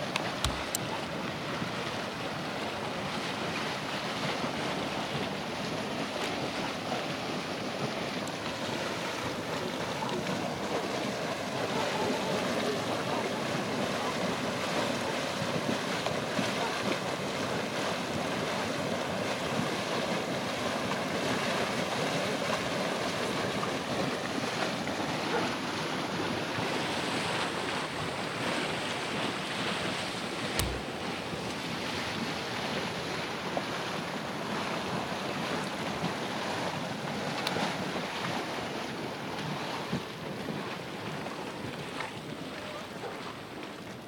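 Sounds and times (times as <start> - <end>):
mud pool churning: 0.0 - 44.0
sharp click: 0.2 - 0.8, 30.6 - 30.9.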